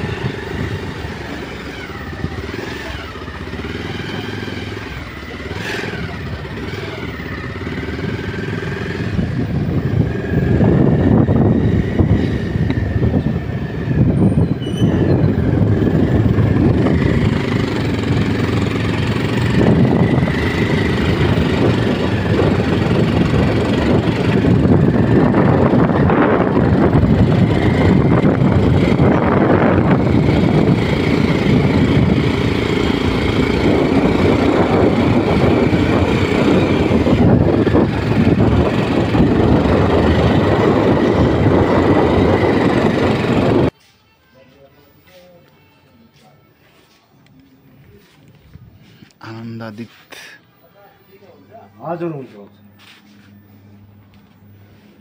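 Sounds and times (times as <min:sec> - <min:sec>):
small motorbike engine running: 0:00.0 - 0:43.8
wind rumbling on microphone: 0:00.0 - 0:43.8.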